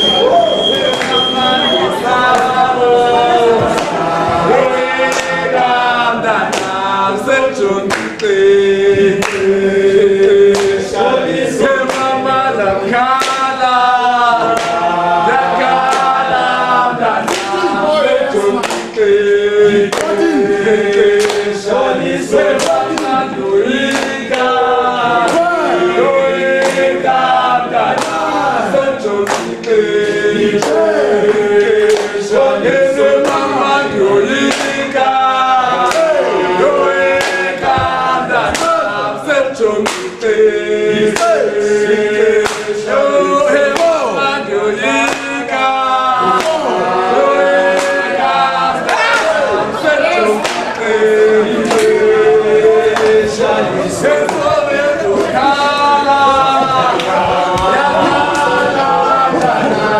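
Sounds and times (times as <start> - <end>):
group singing in harmony: 0.0 - 59.9.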